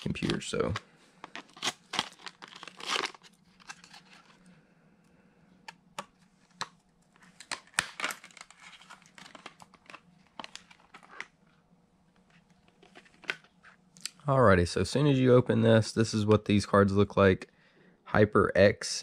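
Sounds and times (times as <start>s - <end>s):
plastic packaging crinkling: 0.0s - 4.4s, 7.2s - 11.3s.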